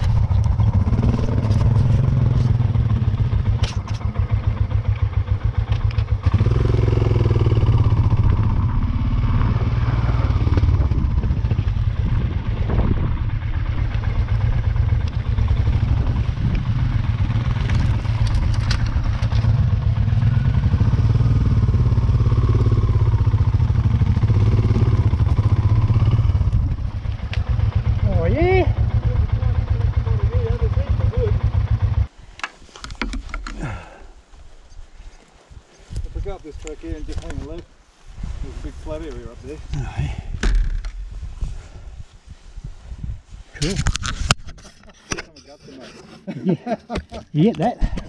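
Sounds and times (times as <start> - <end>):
motorcycle engine running: 0.0 - 32.2
knocks and rattles from motorcycle: 0.0 - 33.9, 39.8 - 41.0, 46.9 - 48.0.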